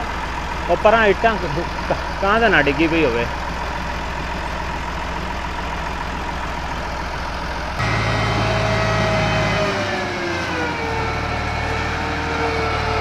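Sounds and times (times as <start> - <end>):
tractor diesel engine running: 0.0 - 13.0
whining tone falling in pitch: 7.8 - 13.0.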